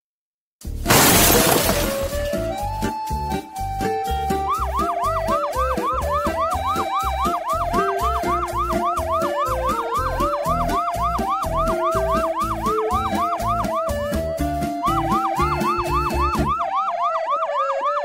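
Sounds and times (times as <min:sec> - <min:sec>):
music with pulsing bass beat: 0:04.1 - 0:16.5
siren-like yelp: 0:04.3 - 0:18.0.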